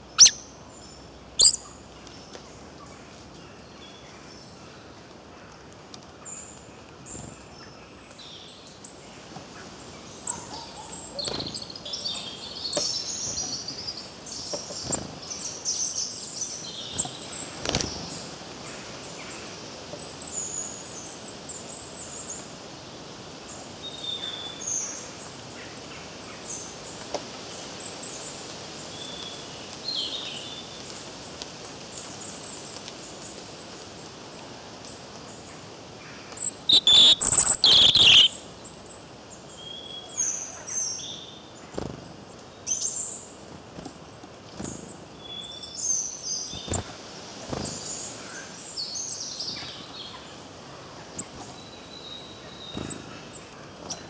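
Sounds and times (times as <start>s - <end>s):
songbirds chirping and singing: 0.0s - 0.4s, 1.4s - 1.7s, 36.5s - 38.4s.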